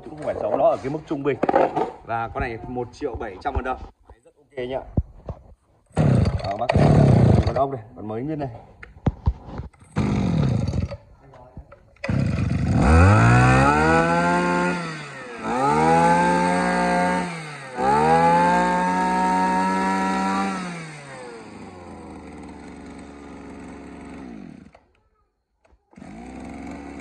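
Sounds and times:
brush cutter engine revving: 0:05.9 - 0:07.7, 0:09.7 - 0:11.1, 0:12.0 - 0:24.9, 0:25.9 - 0:27.0.

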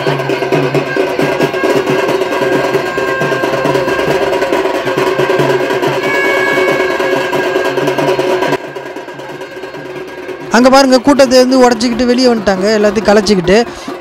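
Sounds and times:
held high note: 0:00.0 - 0:10.5
rhythmic festival drumming: 0:00.0 - 0:14.0.

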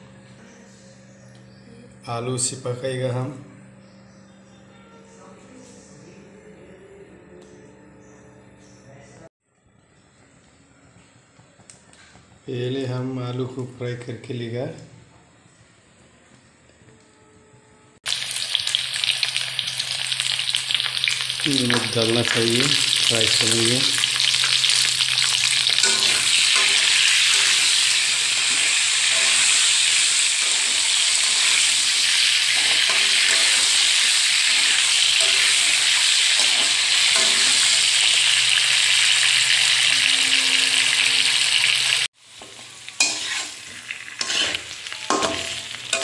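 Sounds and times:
potatoes sizzling in oil: 0:18.0 - 0:46.0
spatula scraping pan: 0:24.1 - 0:38.2, 0:42.4 - 0:46.0.

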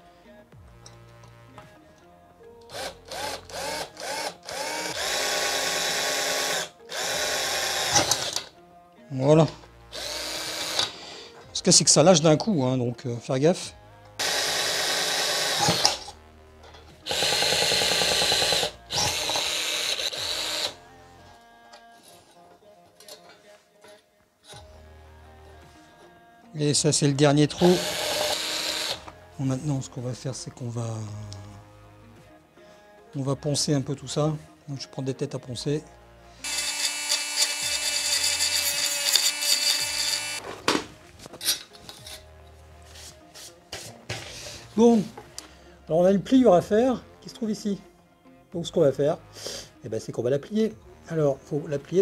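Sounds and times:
cordless drill boring through steel: 0:02.7 - 0:08.5, 0:09.9 - 0:11.0, 0:14.2 - 0:16.1, 0:17.0 - 0:20.8, 0:27.5 - 0:29.1, 0:36.4 - 0:40.4
metal strip handled: 0:39.1 - 0:42.3.

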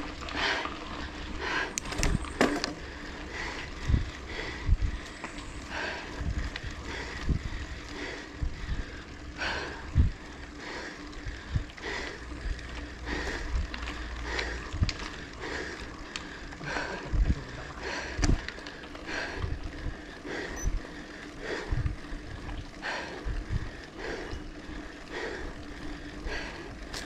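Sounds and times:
cyclist breathing hard: 0:00.0 - 0:27.0
low thumps and rumble of bicycle: 0:00.0 - 0:27.0.

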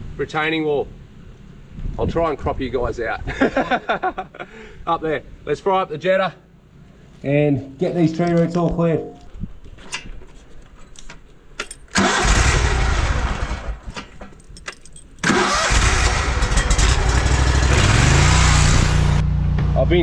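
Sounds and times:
engine starting and running: 0:11.8 - 0:14.4, 0:15.2 - 0:20.0.

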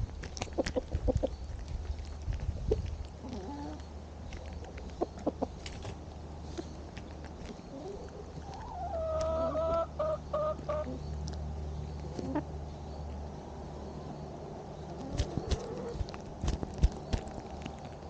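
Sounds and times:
hens pecking at food: 0:00.0 - 0:12.5, 0:14.9 - 0:18.0
chicken calling: 0:07.7 - 0:11.0.

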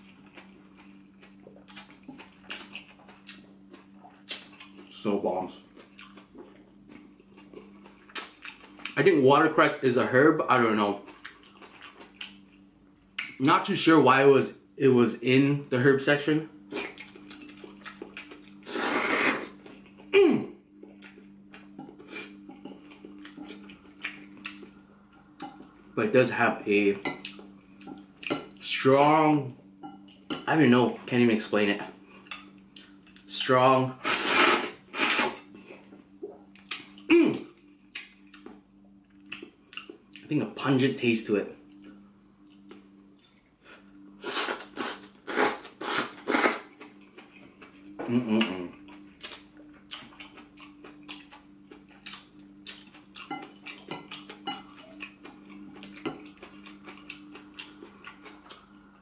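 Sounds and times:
hissing mouth noise: 0:18.6 - 0:19.5, 0:34.0 - 0:35.4, 0:44.2 - 0:46.7.

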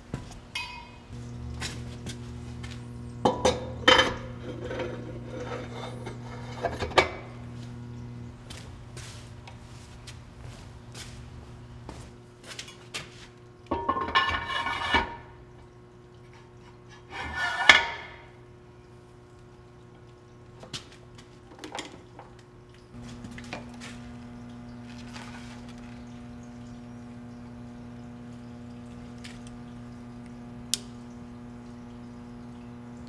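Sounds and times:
steady hum: 0:00.0 - 0:12.6, 0:22.6 - 0:33.0
metal scraping and clanking: 0:03.8 - 0:07.2, 0:13.8 - 0:15.2, 0:17.1 - 0:18.2.

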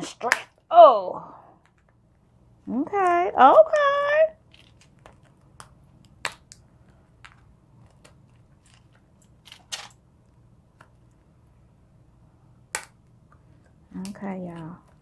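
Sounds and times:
crunching snips and cracks: 0:04.5 - 0:10.0.

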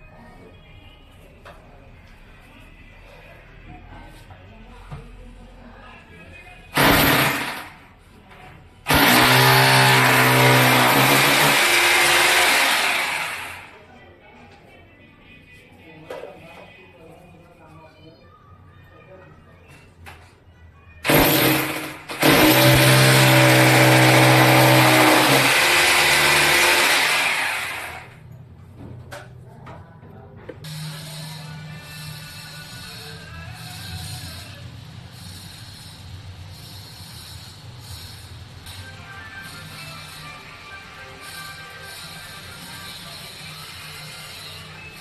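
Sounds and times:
electric drill grinding into tile: 0:06.8 - 0:07.7, 0:08.9 - 0:13.7, 0:21.0 - 0:28.2.

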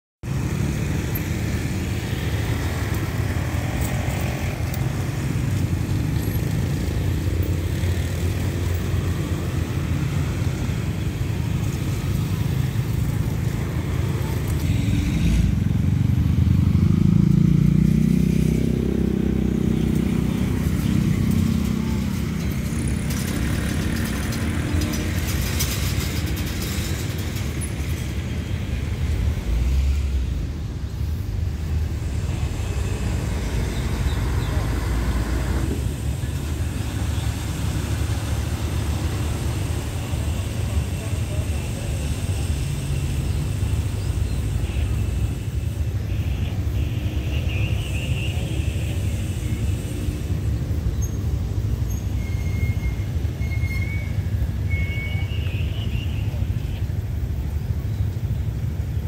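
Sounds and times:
motorcycles passing: 0:00.2 - 0:59.0.

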